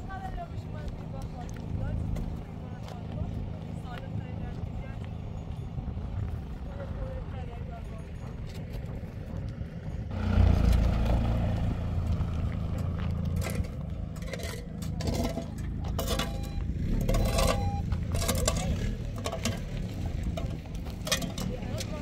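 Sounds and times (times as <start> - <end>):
truck engine rumbling: 0.0 - 22.0
sharp scrapes and clatters: 13.1 - 16.4, 17.0 - 22.0.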